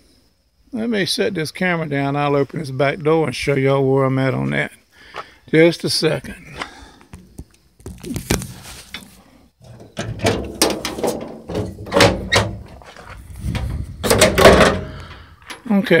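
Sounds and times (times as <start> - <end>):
camera handling knocks and rubbing: 7.1 - 9.1
van door clunking open: 9.6 - 12.9, 14.0 - 15.2.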